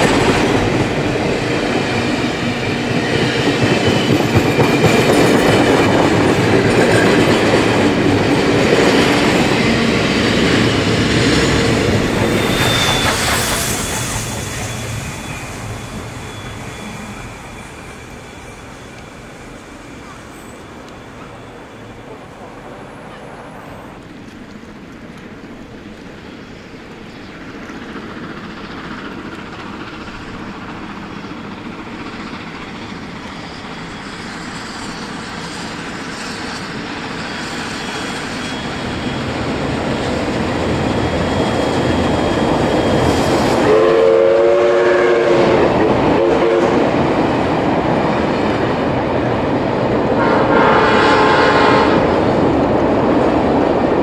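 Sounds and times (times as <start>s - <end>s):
train rumble and wheel clatter: 0.0s - 54.0s
train whistle blasts: 43.5s - 46.8s, 50.2s - 52.2s.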